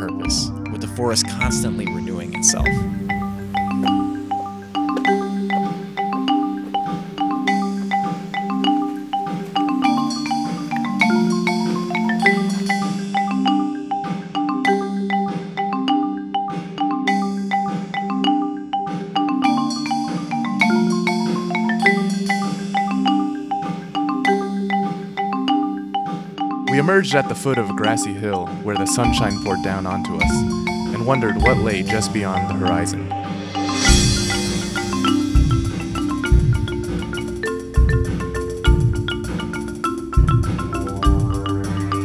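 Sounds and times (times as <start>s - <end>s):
held low notes: 0.0s - 4.3s, 26.8s - 34.6s
background music ringing notes: 0.0s - 13.7s, 26.6s - 42.0s.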